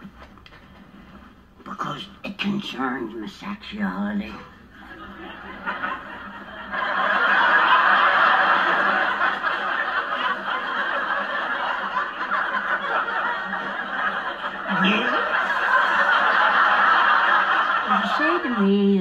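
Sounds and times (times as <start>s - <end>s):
crowd laughing: 4.7s - 19.0s.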